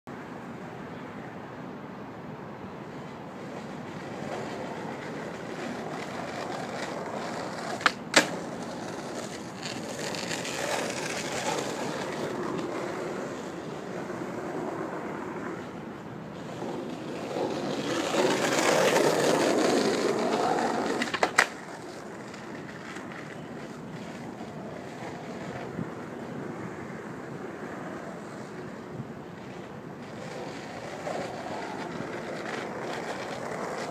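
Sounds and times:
skateboard rolling on asphalt: 2.0 - 33.9
skateboard landing clack: 6.8 - 11.5
skateboard tail pop: 7.8 - 8.4.

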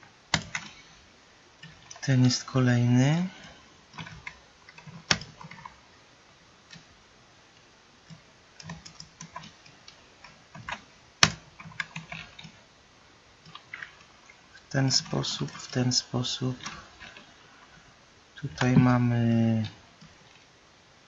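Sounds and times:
keyboard keystrokes: 0.3 - 0.8.

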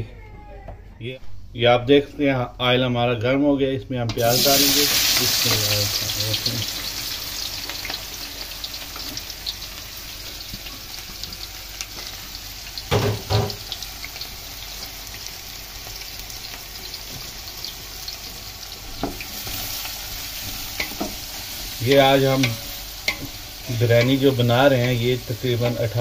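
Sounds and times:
onions sizzling in hot oil: 4.2 - 26.0
wooden spoon stirring: 20.4 - 26.0.

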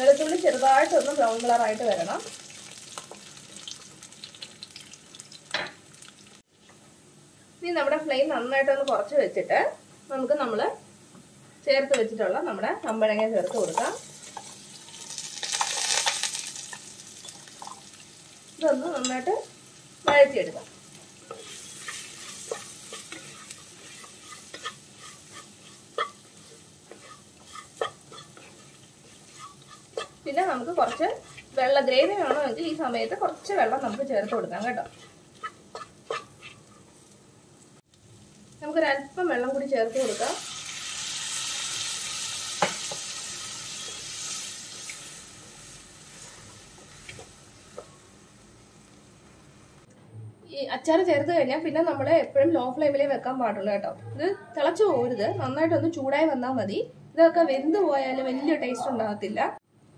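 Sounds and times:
faint oil sizzle: 0.0 - 49.9
wooden spatula scraping a pan: 21.2 - 37.2.

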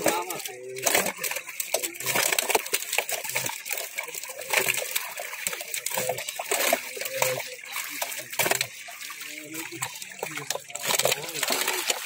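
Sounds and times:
fish thrashing and splashing in net: 0.0 - 12.0.

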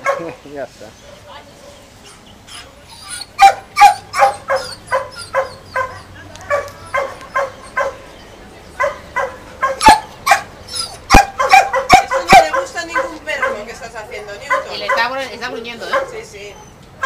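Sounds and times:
dog yapping: 1.6 - 8.0, 8.8 - 13.7.

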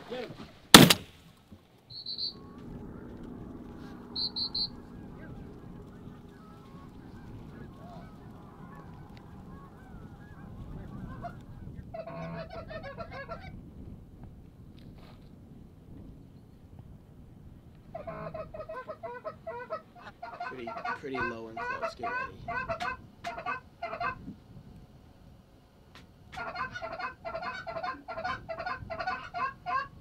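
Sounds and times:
geese honking and clucking: 1.9 - 13.5, 17.9 - 24.3, 26.3 - 30.0.

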